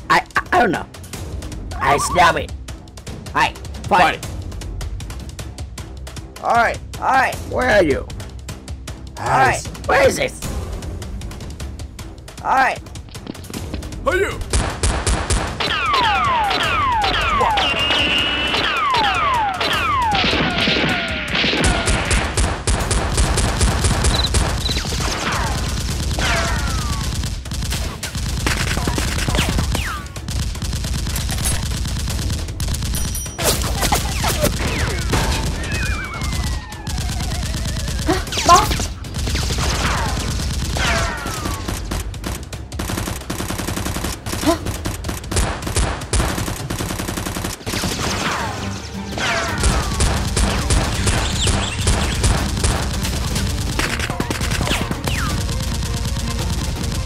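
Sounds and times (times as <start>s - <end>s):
whistling ricochets: 15.6s - 21.8s
automatic gunfire: 17.7s - 33.2s, 49.6s - 57.0s.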